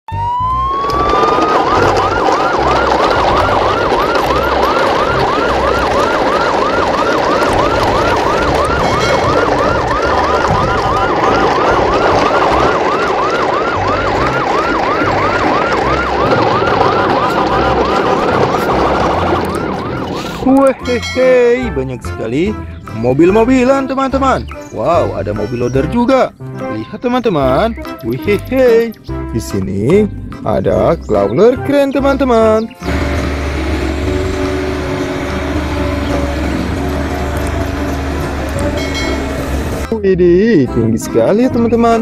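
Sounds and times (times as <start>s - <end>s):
electronic siren yelping: 0.1s - 20.9s, 32.6s - 39.9s.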